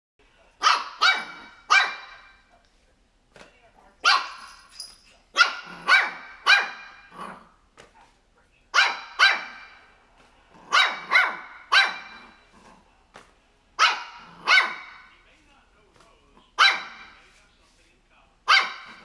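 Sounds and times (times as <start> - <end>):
puppy barking in high yaps: 0.6 - 2.3, 4.0 - 4.5, 5.4 - 7.1, 8.7 - 9.8, 10.7 - 12.4, 13.8 - 15.1, 16.6 - 17.2, 18.5 - 19.0.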